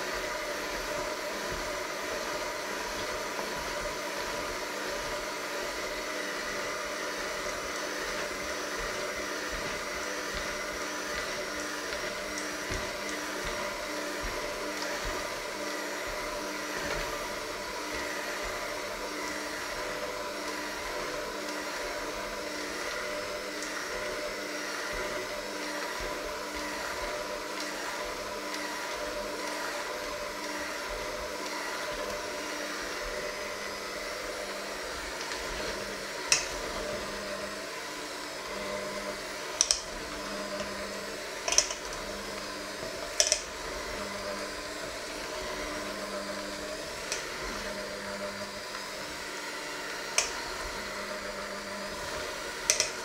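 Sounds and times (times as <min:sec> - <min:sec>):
electric hand mixer running: 0:00.0 - 0:53.0.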